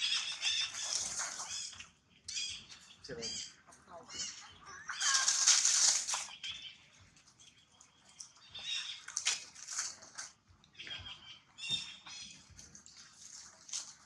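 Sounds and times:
monkeys screaming: 0:03.2 - 0:06.0
high-pitched monkey shrieks: 0:04.1 - 0:05.9.

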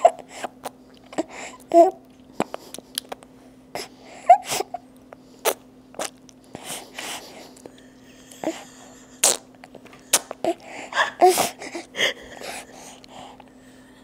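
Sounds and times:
infant sucking and smacking: 0:05.4 - 0:07.2, 0:09.2 - 0:11.8.

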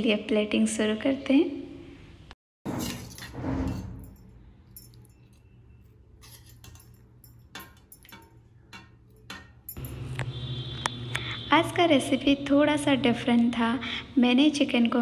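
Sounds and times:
utensil clinking on crockery: 0:02.8 - 0:10.0.

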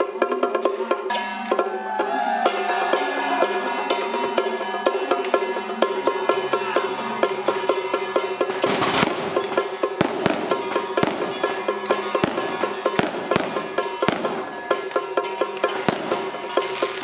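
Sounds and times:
drums: 0:00.0 - 0:17.0
ringing gongs and cymbals: 0:00.5 - 0:17.0
firecrackers: 0:08.2 - 0:17.0.

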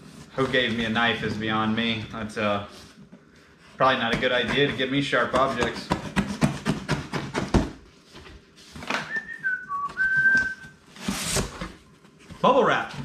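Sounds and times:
man whistling: 0:09.0 - 0:10.8.

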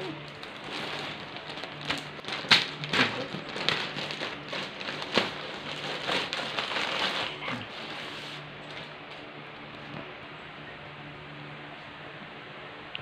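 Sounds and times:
plastic pouch crinkling and tearing: 0:00.2 - 0:08.0.

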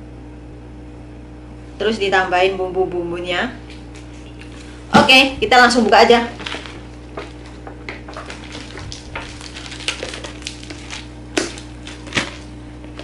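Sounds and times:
plastic wrap crinkling and tearing: 0:06.2 - 0:13.0.

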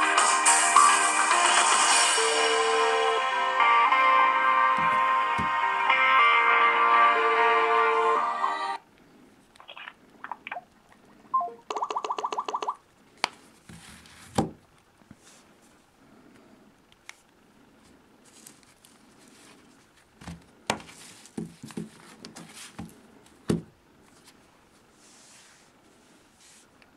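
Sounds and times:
phones tapping on tabletop: 0:04.8 - 0:05.6.

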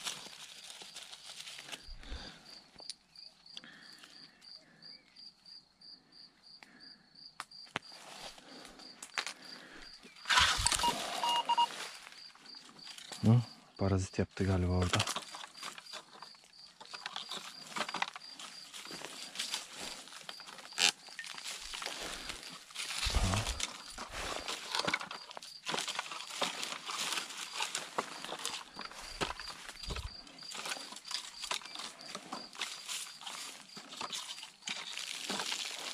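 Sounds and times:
footsteps in dry leaves: 0:00.0 - 0:02.4, 0:10.2 - 0:13.3, 0:17.2 - 0:35.9
rustle of brush and gear: 0:00.0 - 0:04.4, 0:07.8 - 0:13.7, 0:14.6 - 0:35.9
insect chirping: 0:00.0 - 0:35.9
metal detector beeps: 0:10.3 - 0:11.8.

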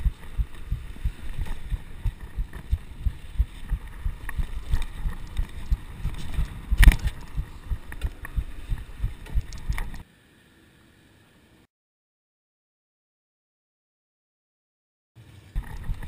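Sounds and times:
bike rattles and clicks: 0:00.0 - 0:10.0, 0:15.5 - 0:16.0
bike thumping over gravel: 0:00.1 - 0:10.0.

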